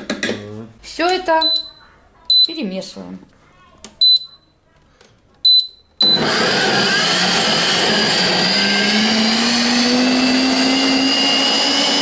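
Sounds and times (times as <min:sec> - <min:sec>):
blender motor running: 0:06.0 - 0:12.0.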